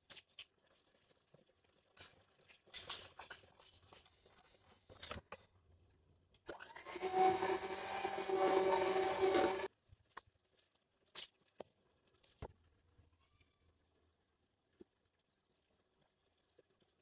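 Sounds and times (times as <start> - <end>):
electric hand mixer whining: 6.5 - 9.7.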